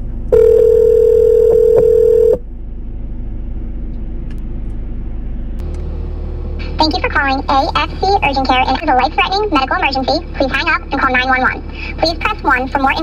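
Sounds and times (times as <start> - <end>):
low line hum: 0.0 - 13.0
telephone ringback tone: 0.3 - 2.4.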